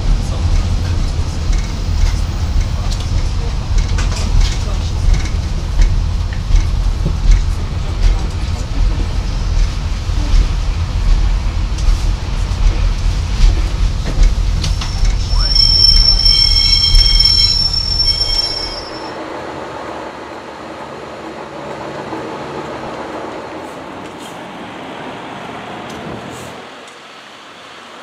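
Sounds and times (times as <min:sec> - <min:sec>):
train rumble: 0:00.0 - 0:28.0
wheel squeal: 0:14.7 - 0:19.1.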